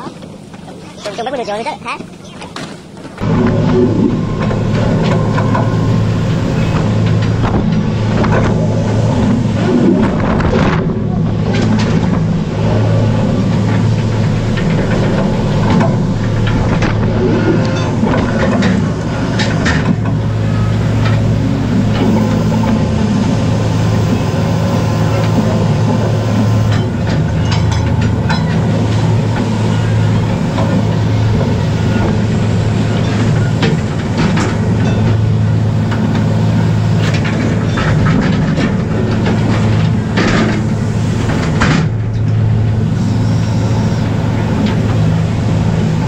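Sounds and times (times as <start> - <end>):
boat engine and machinery droning: 0.0 - 46.0.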